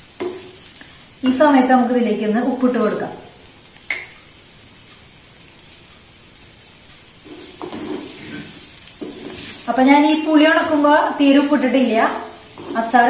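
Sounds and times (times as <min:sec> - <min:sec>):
food sizzling in oil: 0:00.0 - 0:13.0
wooden spatula scraping: 0:07.2 - 0:13.0.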